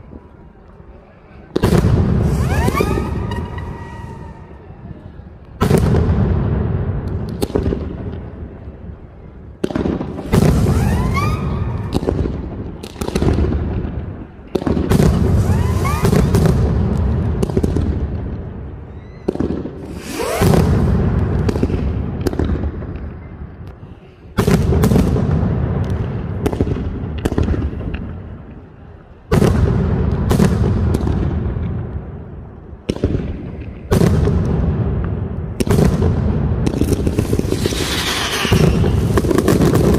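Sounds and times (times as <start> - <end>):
firecracker bangs and aerial booms: 1.5 - 4.8, 5.6 - 8.7, 9.5 - 23.2, 24.3 - 28.5, 29.2 - 39.9
rising firework whistles: 2.0 - 4.9, 10.2 - 12.2, 15.0 - 16.7, 18.8 - 21.5, 36.9 - 39.9.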